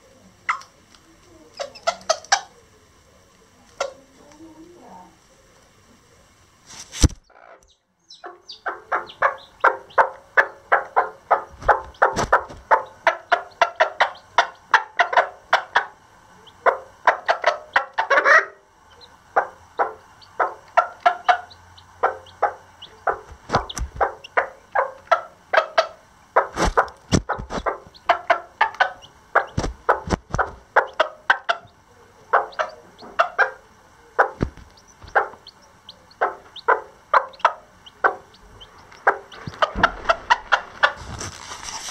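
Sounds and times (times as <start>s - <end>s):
hen clucking rapidly: 1.5s - 2.6s, 7.2s - 41.4s.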